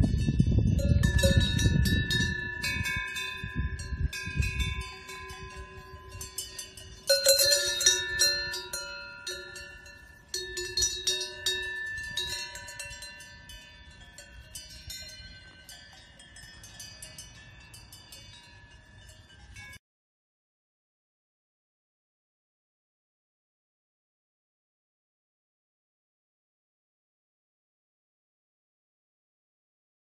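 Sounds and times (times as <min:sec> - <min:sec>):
cowbells clanking: 0:00.0 - 0:19.8.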